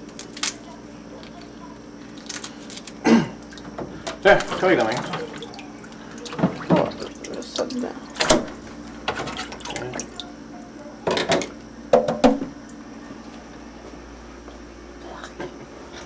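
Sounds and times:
water splashing in sink: 4.3s - 10.3s.

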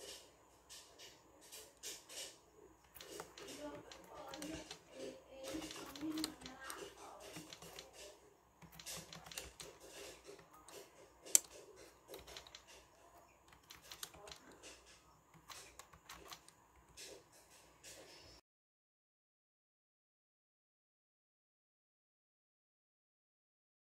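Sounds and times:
keyboard key clicks: 5.4s - 8.0s, 8.6s - 12.7s.

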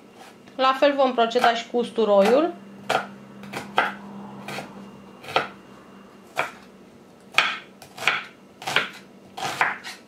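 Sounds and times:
knife cutting onion: 0.0s - 5.6s, 6.3s - 6.7s, 7.3s - 10.0s
knife striking wooden board: 2.9s - 4.0s, 7.3s - 10.0s.

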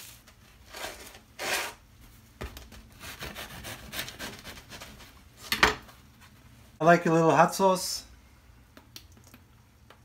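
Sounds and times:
bread knife sawing crusty roll: 0.7s - 1.8s, 3.0s - 5.1s.

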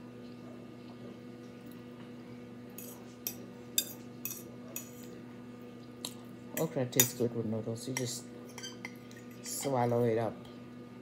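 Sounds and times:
low electrical hum: 0.0s - 11.0s
fork scraping a plate: 2.8s - 5.2s, 8.0s - 9.8s.

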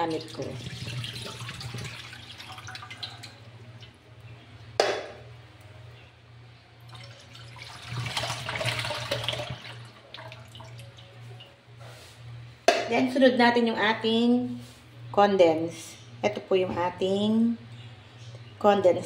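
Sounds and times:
milk pouring into a pan: 0.6s - 3.4s, 6.9s - 10.9s.

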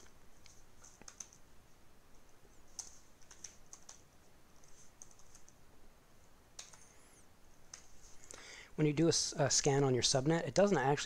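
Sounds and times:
faint keyboard typing: 0.0s - 5.8s, 6.5s - 8.4s.

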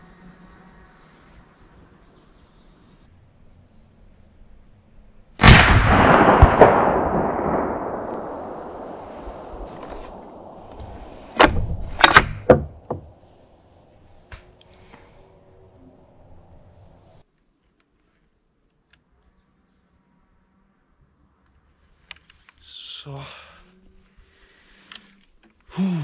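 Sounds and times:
rifle shot: 5.4s - 12.6s
sharp clicks and knocks: 10.7s - 13.1s.

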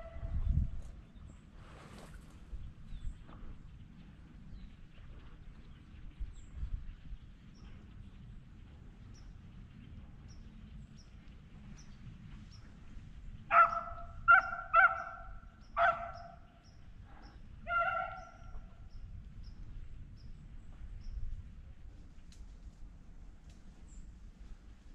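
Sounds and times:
dog barking: 13.5s - 16.4s, 17.7s - 18.4s.

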